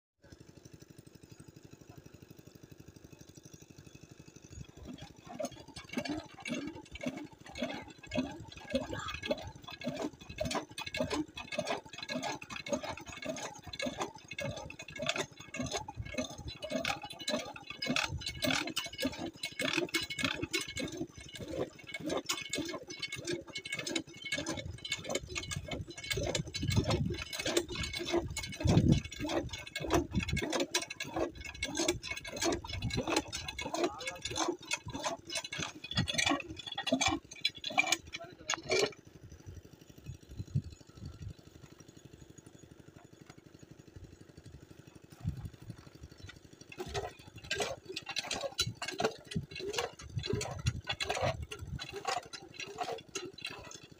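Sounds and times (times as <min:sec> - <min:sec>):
hand pump lever strokes: 0:03.3 - 0:53.9.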